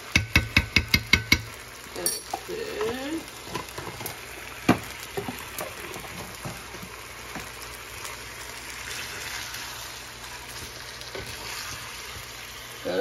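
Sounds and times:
chicken sizzling in hot oil: 0:00.0 - 0:13.0
wooden spatula tapping pan: 0:00.1 - 0:01.6.

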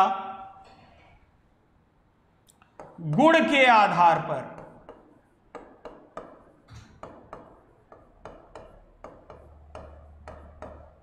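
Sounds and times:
writing taps and scratches on board: 0:02.6 - 0:03.5, 0:04.5 - 0:11.0.

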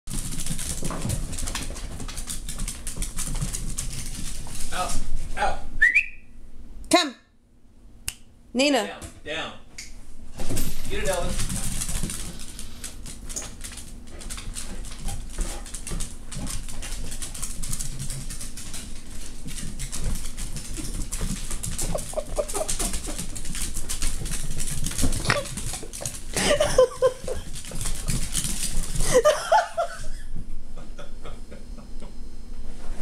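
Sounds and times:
dog claws skittering on hardwood: 0:00.1 - 0:04.7, 0:11.1 - 0:26.3, 0:27.2 - 0:29.0
dogs whimpering and yipping: 0:21.6 - 0:23.3.

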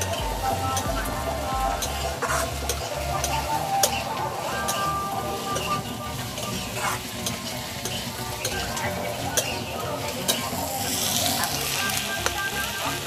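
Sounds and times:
onions sizzling in oil: 0:00.0 - 0:13.0.

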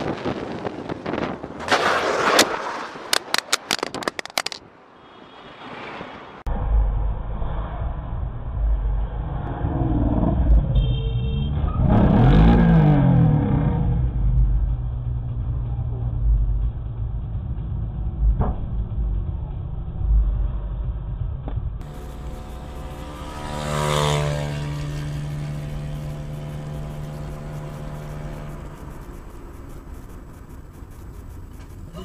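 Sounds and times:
road rumble: 0:00.0 - 0:32.0
car engine: 0:06.4 - 0:32.0.

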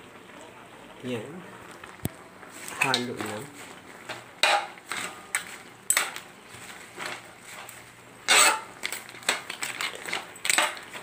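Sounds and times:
utensil scraping a metal wok: 0:02.5 - 0:11.0.

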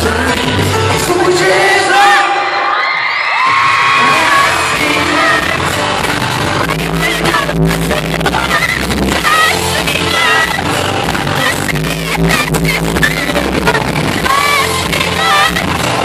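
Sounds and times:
live pop song: 0:00.0 - 0:16.0
person singing: 0:04.0 - 0:16.0.

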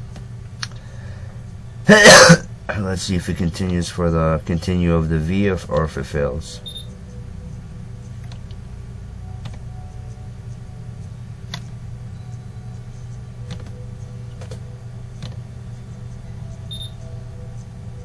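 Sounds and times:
low electrical hum: 0:00.0 - 0:18.0
computer mouse clicking: 0:08.0 - 0:08.6, 0:13.0 - 0:15.4.

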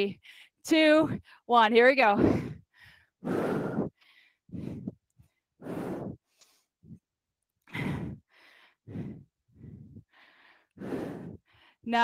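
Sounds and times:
woman breathing hard: 0:02.2 - 0:07.1, 0:07.7 - 0:11.9.

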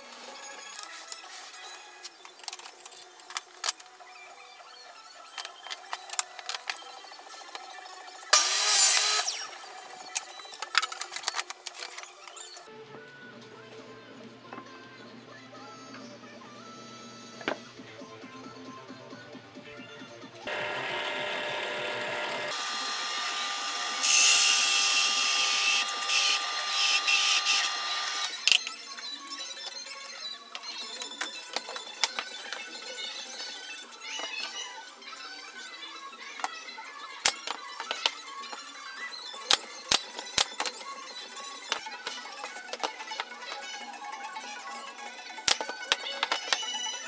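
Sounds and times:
hole saw cutting wood: 0:08.4 - 0:09.5, 0:20.5 - 0:28.3
drill press motor running: 0:20.5 - 0:28.3.

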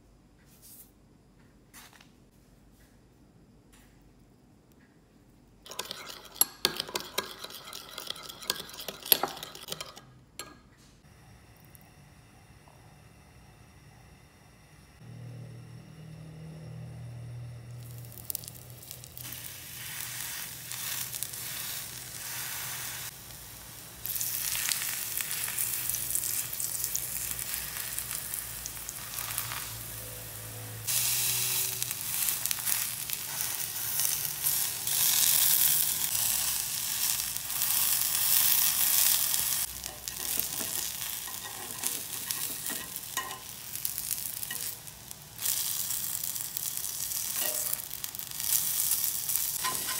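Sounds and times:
eggplant sizzling in hot oil: 0:17.8 - 0:49.9.

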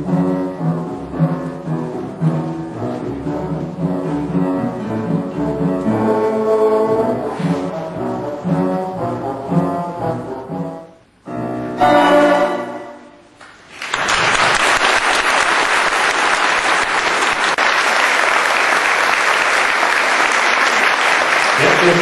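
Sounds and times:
orchestra playing: 0:00.0 - 0:13.4
audience applauding: 0:13.4 - 0:22.0.

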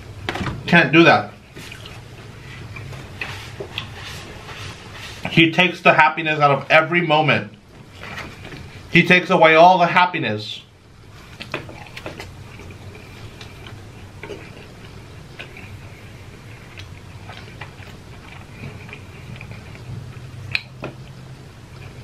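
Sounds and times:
low steady hum: 0:00.0 - 0:22.0
person chewing food: 0:01.5 - 0:05.3, 0:11.0 - 0:22.0.

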